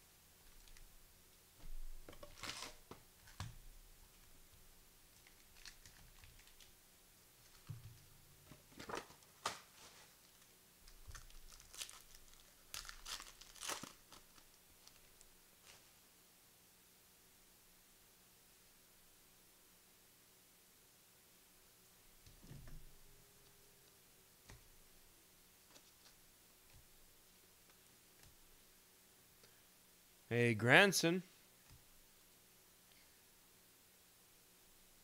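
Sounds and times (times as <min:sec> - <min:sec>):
foil wrappers tearing and crinkling: 0:02.3 - 0:02.8, 0:11.1 - 0:15.1.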